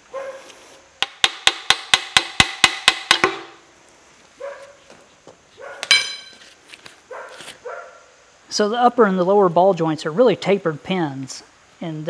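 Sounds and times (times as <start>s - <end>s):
hammer striking steel: 1.0s - 3.6s, 5.8s - 6.4s.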